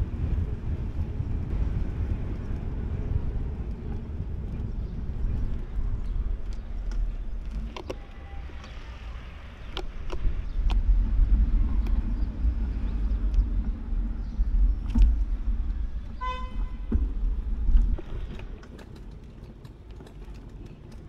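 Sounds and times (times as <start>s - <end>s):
low rumble: 0.0s - 19.2s
sharp clicks: 9.6s - 10.9s.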